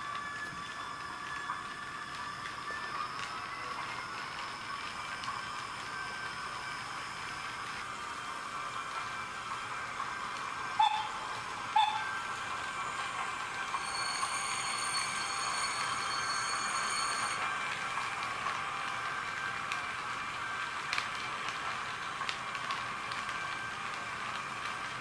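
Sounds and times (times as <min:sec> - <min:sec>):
model train running whirr: 0:00.0 - 0:25.0
high whine: 0:10.6 - 0:18.1.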